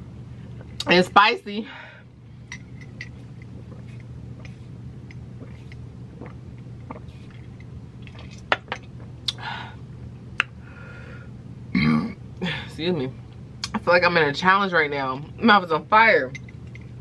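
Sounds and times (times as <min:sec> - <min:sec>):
low hum: 0:00.0 - 0:17.0
breathy puff of air: 0:10.6 - 0:11.4.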